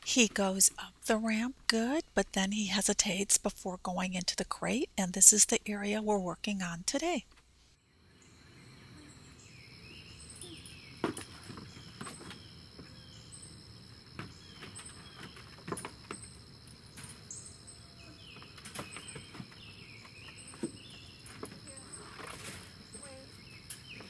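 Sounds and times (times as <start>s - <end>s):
birds chirping: 8.0s - 24.0s
high insect drone: 19.7s - 24.0s.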